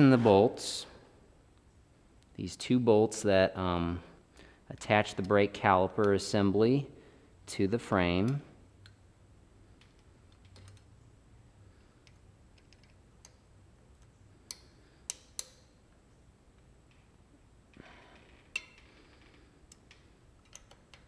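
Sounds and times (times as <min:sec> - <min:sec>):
allen key metallic clicks: 0:12.0 - 0:15.8, 0:18.5 - 0:19.0, 0:19.7 - 0:21.0.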